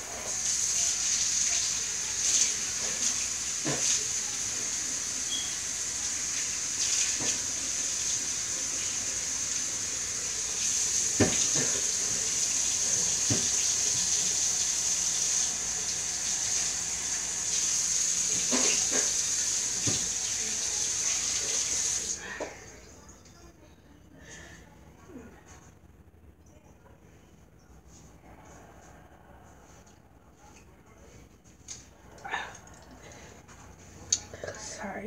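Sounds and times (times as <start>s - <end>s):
faucet running into sink: 0.1s - 22.5s.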